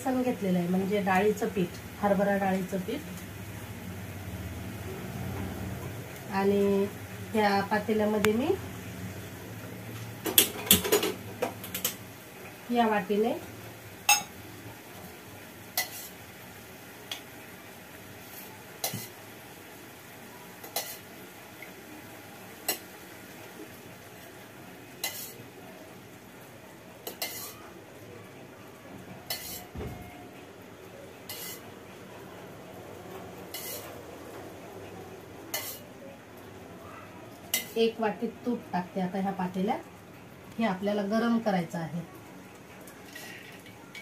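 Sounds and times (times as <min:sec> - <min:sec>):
stove hissing: 0:00.0 - 0:44.0
spoon clinking on steel bowl: 0:14.1 - 0:14.4.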